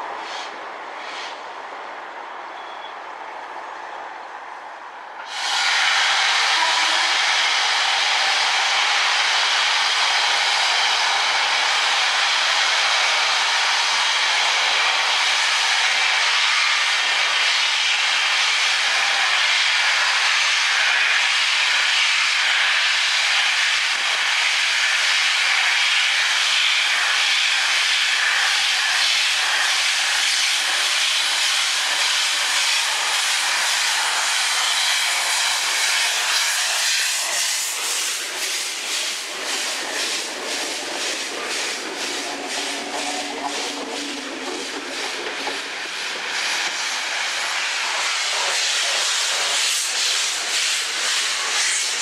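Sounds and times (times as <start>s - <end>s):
steam hissing from locomotive: 0.0s - 1.6s, 5.2s - 52.0s
train wheels clicking over track: 27.9s - 52.0s.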